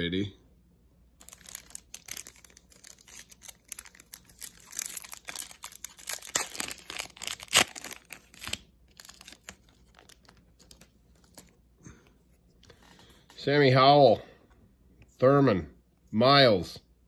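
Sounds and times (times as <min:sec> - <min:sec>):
foil wrapper ripping: 0:01.2 - 0:11.5
foil wrapper crinkling: 0:01.2 - 0:11.6.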